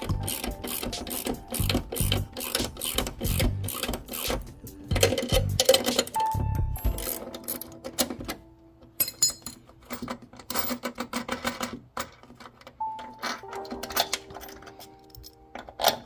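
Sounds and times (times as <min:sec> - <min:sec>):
light metallic clicks and clinks: 0:09.0 - 0:10.8.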